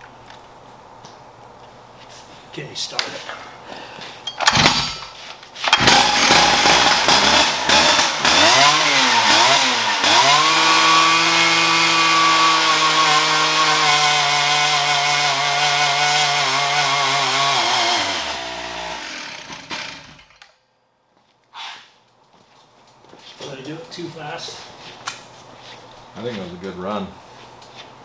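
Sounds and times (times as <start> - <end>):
chainsaw revving: 4.5 - 5.0, 5.7 - 20.4.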